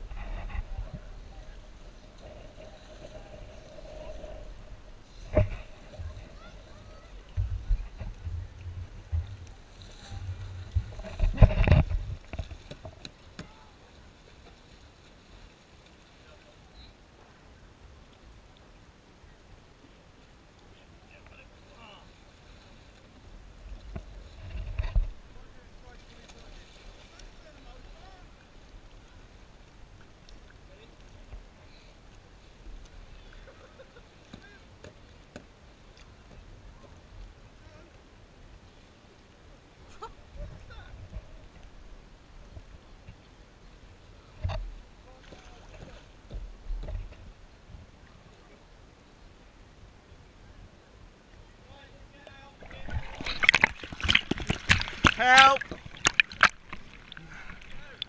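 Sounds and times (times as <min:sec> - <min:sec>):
faint distant voices: 0:00.0 - 0:10.8
wind rumble on microphone: 0:00.0 - 0:13.0
water splashing around kayaks: 0:00.0 - 0:58.0
water drips: 0:52.6 - 0:58.0.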